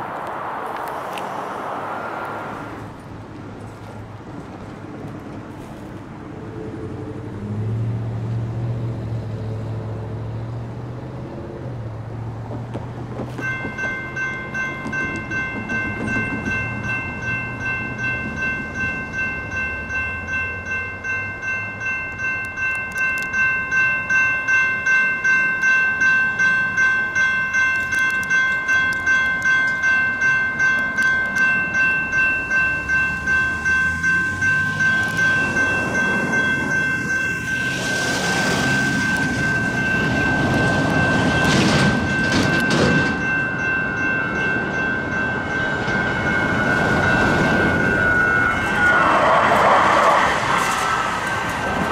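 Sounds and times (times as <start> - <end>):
railroad crossing bells ringing: 13.2 - 51.9.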